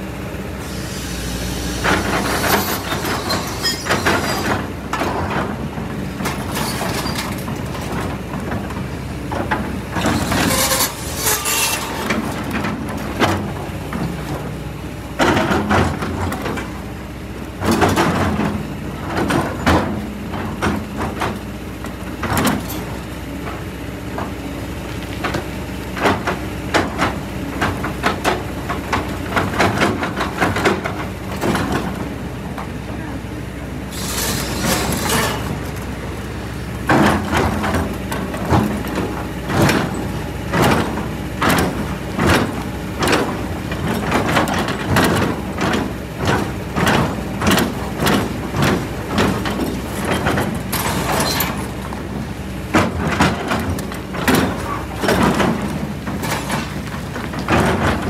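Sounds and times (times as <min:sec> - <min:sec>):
excavator diesel engine running: 0:00.0 - 0:58.0
rock and metal knocks and scrapes: 0:09.4 - 0:14.4, 0:34.0 - 0:35.9, 0:36.8 - 0:58.0.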